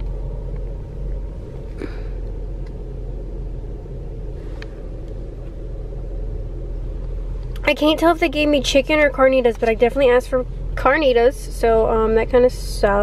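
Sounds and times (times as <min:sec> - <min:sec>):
car engine rumble inside cabin: 0:00.0 - 0:13.0
faint rustle: 0:04.2 - 0:05.7
light tick: 0:04.6 - 0:05.6, 0:07.0 - 0:07.7.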